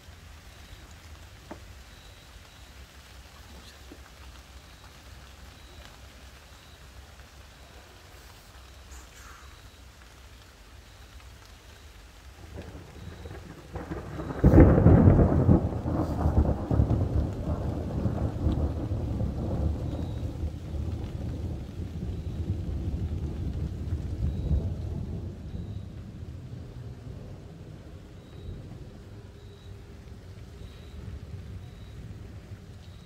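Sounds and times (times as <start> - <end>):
thunder rumbling and clapping: 12.4 - 29.4.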